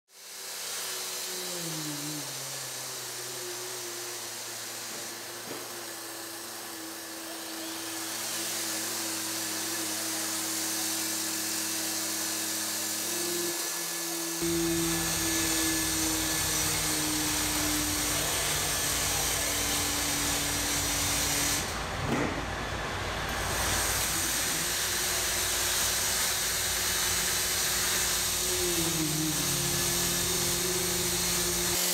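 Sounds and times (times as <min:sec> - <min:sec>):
hiss: 0:00.1 - 0:21.9, 0:23.3 - 0:31.9
robot actuators whining: 0:14.3 - 0:31.8.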